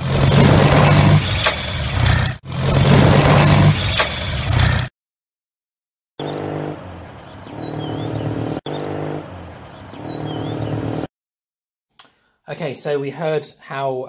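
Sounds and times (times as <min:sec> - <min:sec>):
motorcycle engine running: 0:00.0 - 0:04.9, 0:06.2 - 0:11.1
bird chirps: 0:06.2 - 0:06.6, 0:07.2 - 0:09.0, 0:09.6 - 0:11.1.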